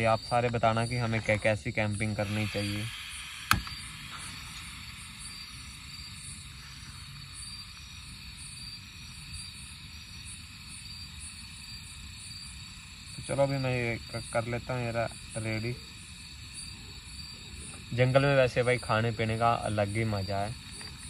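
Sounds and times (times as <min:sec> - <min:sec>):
crickets chirping: 0:00.0 - 0:21.0
low hiss: 0:00.0 - 0:21.0
sharp click: 0:03.4 - 0:04.7.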